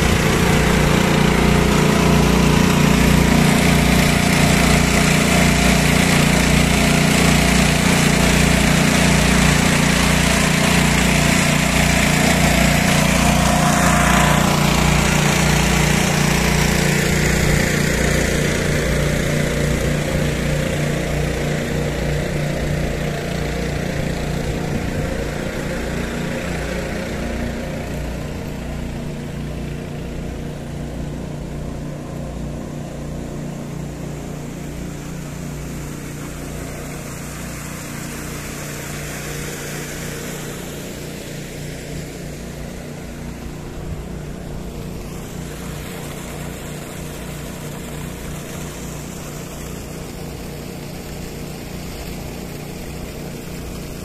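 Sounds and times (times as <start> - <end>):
engine-driven pump running: 0.0 - 54.0.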